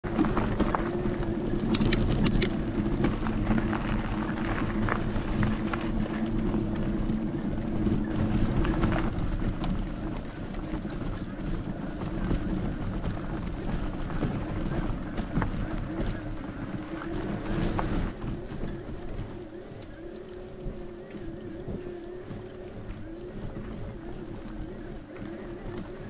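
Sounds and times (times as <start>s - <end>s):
bike tyres rattling on gravel: 0.0s - 26.0s
steady low hum: 0.0s - 26.0s
wind rushing over microphone: 0.0s - 26.0s
scattered clicks: 0.1s - 14.0s.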